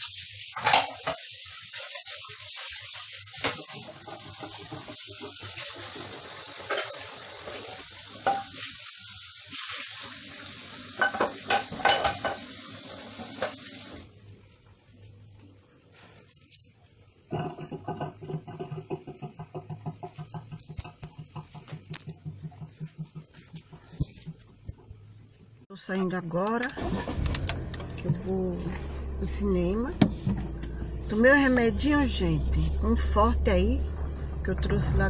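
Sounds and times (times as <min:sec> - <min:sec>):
tap water running into sink: 0:00.1 - 0:14.1, 0:17.4 - 0:24.2, 0:29.7 - 0:33.0.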